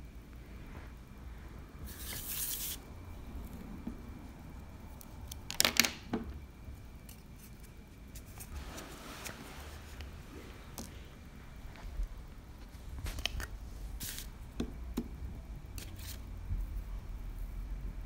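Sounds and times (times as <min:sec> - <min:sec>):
rustle on tabletop: 0:00.5 - 0:02.8, 0:07.0 - 0:14.4, 0:15.8 - 0:17.6.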